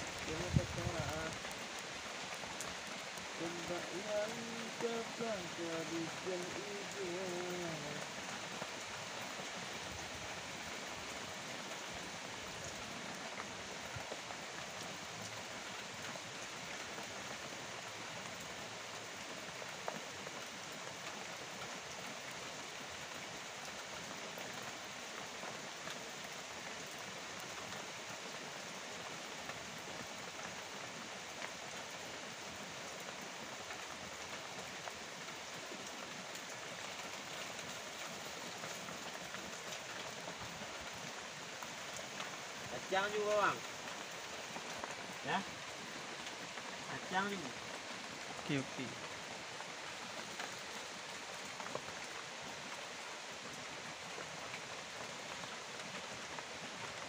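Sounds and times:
raindrop ticks: 0.0 - 11.9, 32.8 - 56.6
steady rain falling: 0.0 - 57.0.

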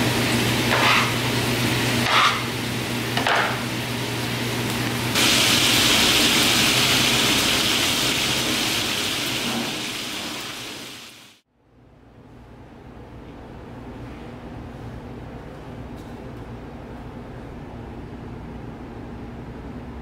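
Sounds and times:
meat sizzling in a skillet: 5.1 - 11.4.

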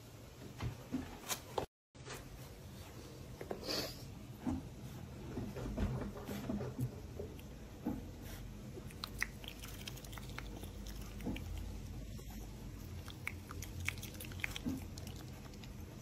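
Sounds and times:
otter chewing food: 6.4 - 16.0.

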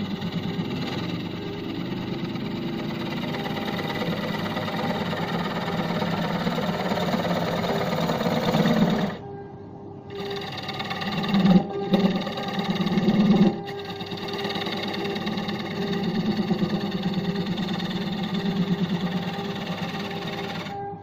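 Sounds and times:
wood lathe running: 0.0 - 9.2, 10.1 - 20.9
turning tool chattering on wood: 10.1 - 20.7.

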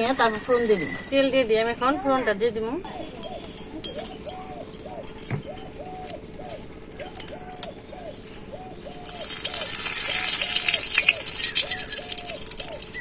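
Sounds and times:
bird calling: 0.0 - 13.0
hot oil sizzling in a wok: 9.1 - 13.0.

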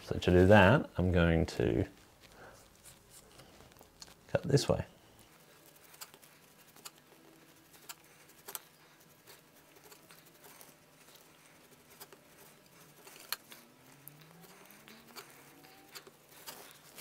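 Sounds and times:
knife scraping leather: 5.4 - 17.0.

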